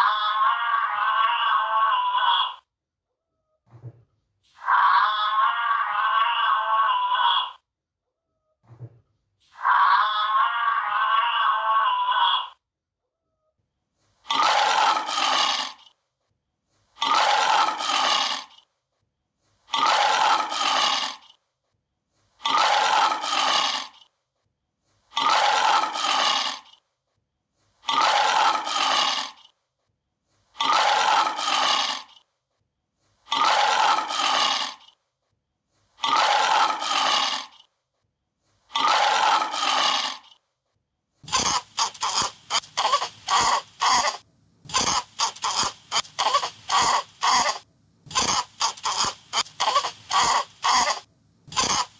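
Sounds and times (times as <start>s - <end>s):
lion roaring: 14.3s - 15.8s, 17.0s - 18.5s, 19.7s - 21.3s, 22.4s - 24.0s, 25.2s - 26.7s, 27.8s - 29.4s, 30.6s - 32.1s, 33.3s - 34.9s, 36.0s - 37.6s, 38.7s - 40.4s.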